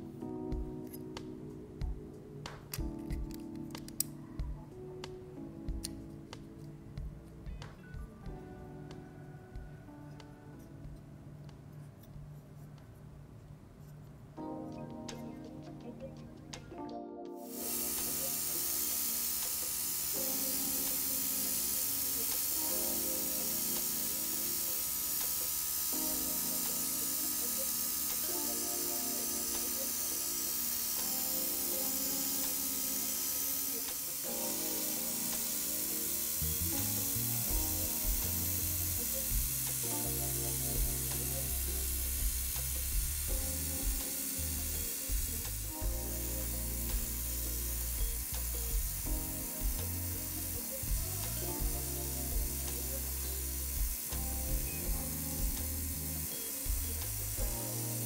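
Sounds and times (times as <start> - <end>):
background music with deep beat: 0.0 - 11.7, 14.4 - 58.0
airbrush spraying hiss: 17.4 - 58.0.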